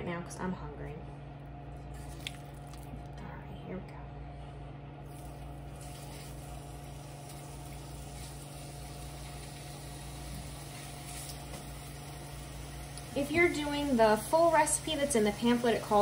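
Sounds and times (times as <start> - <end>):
steady low hum: 0.0 - 16.0
chicken sizzling in hot oil: 5.1 - 16.0.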